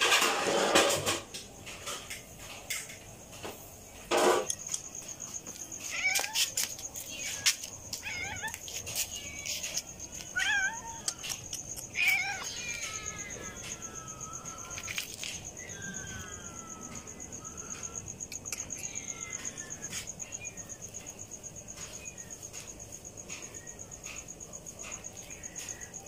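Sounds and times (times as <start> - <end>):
cat meowing: 5.8 - 18.0, 18.6 - 20.6.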